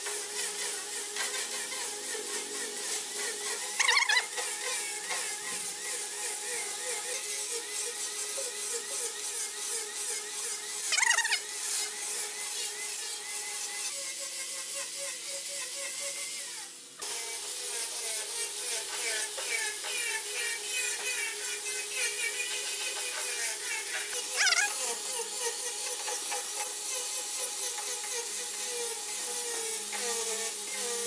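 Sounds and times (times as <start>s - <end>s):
sanding disc hissing on wood: 0.0s - 31.0s
angle grinder motor whine: 0.1s - 13.2s.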